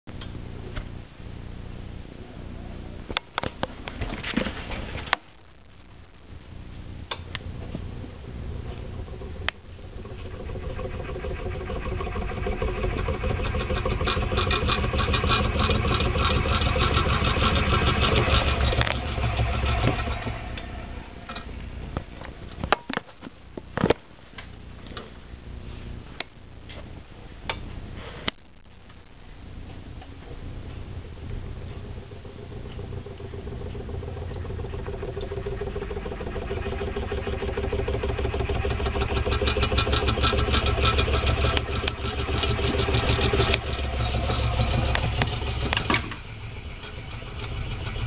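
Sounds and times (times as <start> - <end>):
pot rattling and buzzing on stove: 7.1 - 22.8, 29.6 - 48.0.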